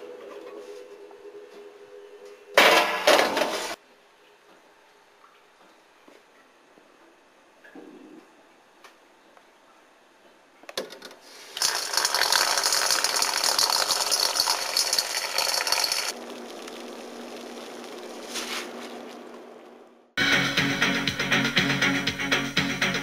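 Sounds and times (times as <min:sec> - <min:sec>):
pot of water boiling: 0:11.3 - 0:19.6.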